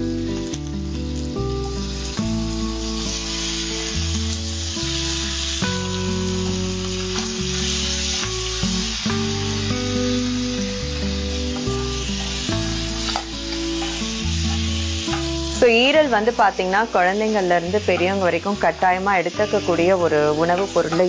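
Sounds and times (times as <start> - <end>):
background music with chords: 0.0 - 16.2
liver sizzling in hot oil: 0.0 - 21.0
spatula stirring in pan: 11.4 - 15.4.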